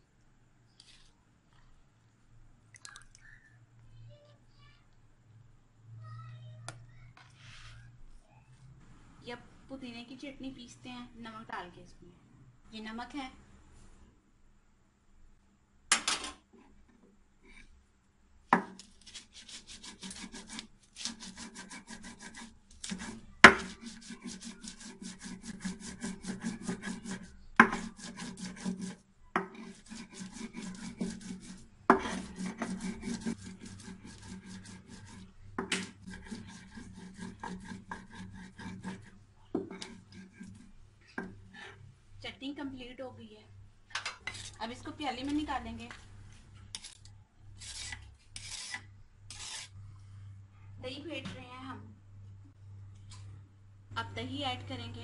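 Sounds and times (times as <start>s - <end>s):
stone grinding scraping: 19.1s - 40.7s, 47.6s - 49.7s.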